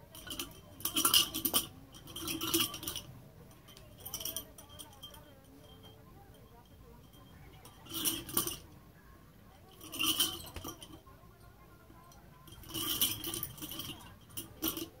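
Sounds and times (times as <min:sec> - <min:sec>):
nunchaku chain clinking: 0:00.0 - 0:06.0, 0:07.1 - 0:08.7, 0:09.7 - 0:11.0, 0:12.4 - 0:15.0.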